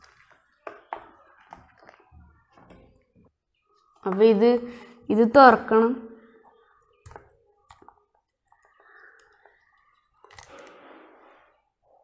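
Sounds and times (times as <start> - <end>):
faint plastic clicks: 6.4 - 10.8.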